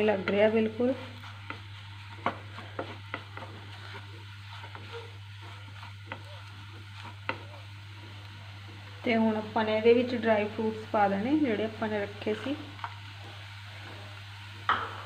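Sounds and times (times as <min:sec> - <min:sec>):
spatula scraping frying pan: 0:00.0 - 0:08.9
faint sizzling: 0:00.0 - 0:15.0
steady low hum: 0:00.0 - 0:15.0.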